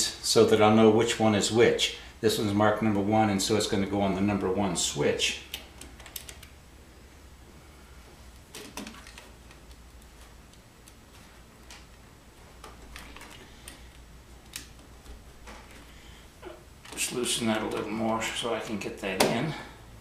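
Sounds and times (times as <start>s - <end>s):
small clicks and taps: 8.4s - 12.0s.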